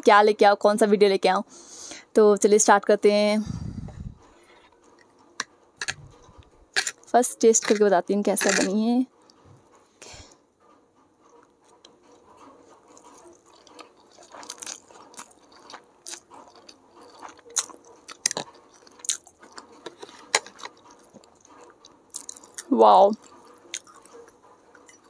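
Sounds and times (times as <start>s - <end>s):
chewing noodles with mouth clicks: 3.7s - 9.4s, 11.3s - 25.0s.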